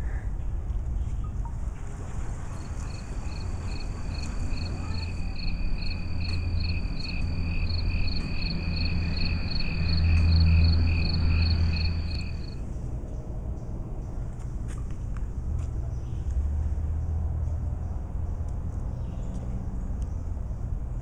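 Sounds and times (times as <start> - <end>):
steady low rumble: 0.0 - 21.0
insect chirping: 2.5 - 12.8.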